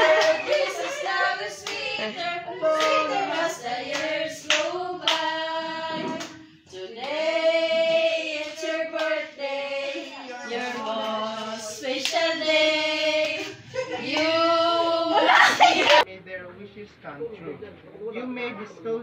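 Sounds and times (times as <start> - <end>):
hands clapping along: 0.0 - 0.8, 1.6 - 1.9, 2.7 - 5.3
group singing a birthday tune: 0.0 - 16.1.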